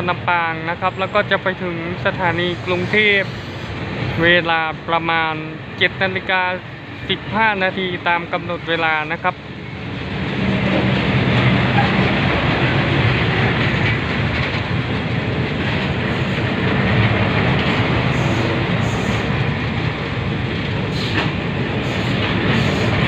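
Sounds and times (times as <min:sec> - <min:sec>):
train wheels rolling on rails: 0:00.9 - 0:23.0
wheels clicking over rail joints: 0:10.3 - 0:22.9.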